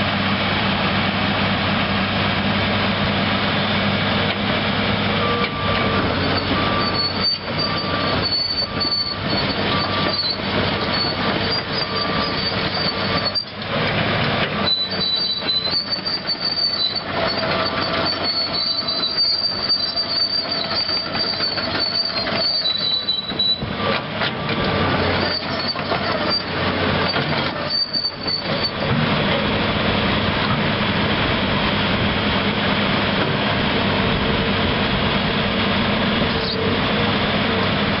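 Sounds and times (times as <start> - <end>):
excavator running: 0.0 - 38.0
metallic squeals from steel tracks: 5.0 - 13.9, 14.5 - 29.0, 36.3 - 37.8.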